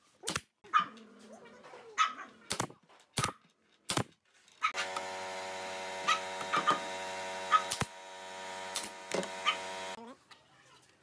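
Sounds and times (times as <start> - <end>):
nail gun firing: 4.8 - 10.0
steady machine hum: 4.8 - 10.0.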